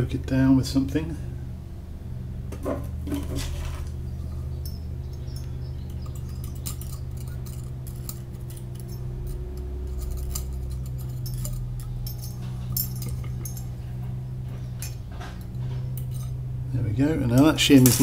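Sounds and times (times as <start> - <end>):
steady low hum: 0.0 - 18.0
metallic clicks and scrapes: 3.1 - 16.4.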